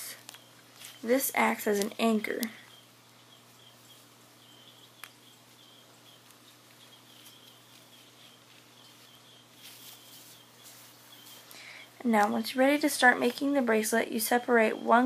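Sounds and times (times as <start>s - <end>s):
light rustling: 0.0s - 2.8s, 3.4s - 13.7s
faint high chirps: 0.0s - 12.0s
steady low hum: 0.0s - 15.0s.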